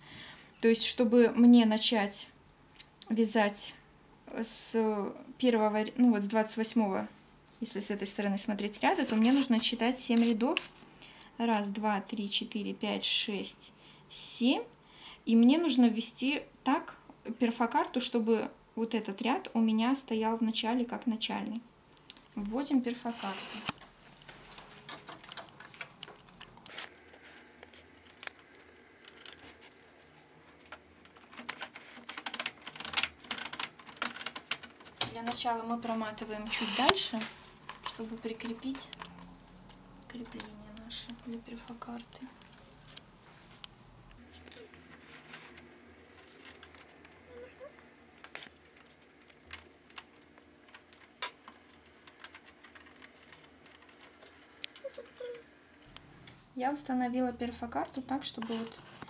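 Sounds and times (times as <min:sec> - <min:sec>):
card crinkling and rustling: 0:23.2 - 0:35.1, 0:44.2 - 0:55.4.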